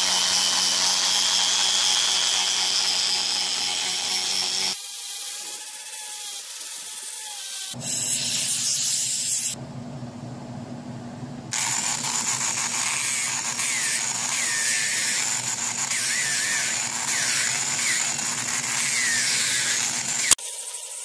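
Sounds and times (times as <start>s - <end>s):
angle grinder sanding wood: 0.0s - 9.6s, 11.6s - 21.0s
low hum: 9.5s - 20.4s.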